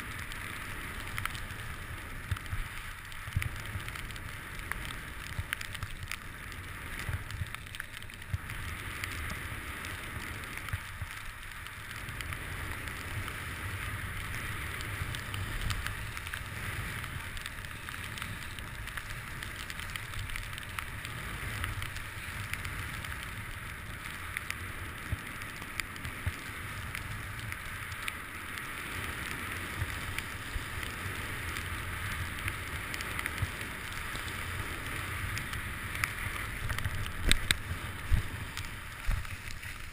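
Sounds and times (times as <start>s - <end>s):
skis scraping over snow: 0.0s - 39.9s
small clicks and ticks: 0.0s - 39.9s
wind on microphone: 28.5s - 39.9s.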